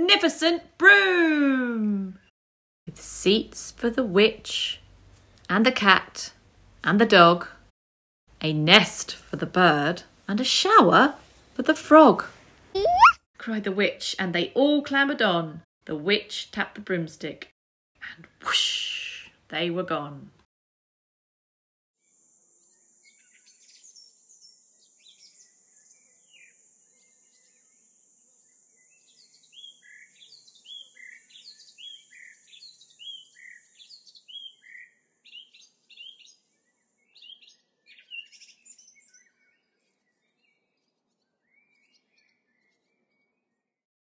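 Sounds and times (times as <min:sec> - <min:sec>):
thin high-pitched tone: 0:12.8 - 0:13.2.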